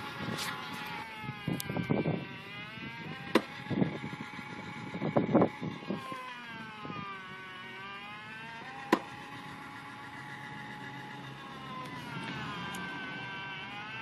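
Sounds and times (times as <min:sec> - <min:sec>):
electric motor whining: 0:00.0 - 0:14.0
ball launcher pop: 0:03.3 - 0:03.6, 0:08.8 - 0:09.2.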